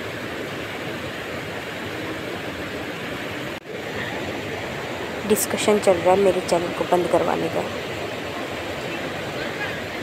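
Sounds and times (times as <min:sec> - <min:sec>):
rocky stream rushing: 0:00.0 - 0:10.0.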